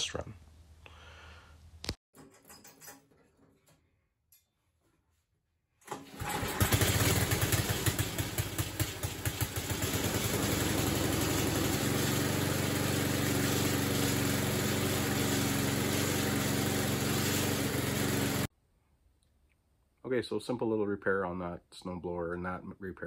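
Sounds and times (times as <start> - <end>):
small engine starting and running: 5.8 - 18.5.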